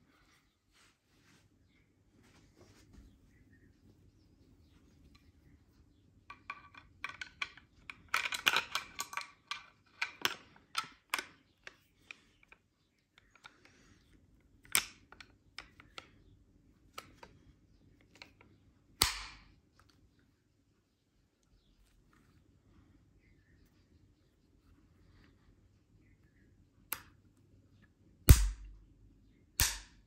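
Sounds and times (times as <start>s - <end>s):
shotgun parts clicking: 6.3s - 13.8s, 18.0s - 20.0s.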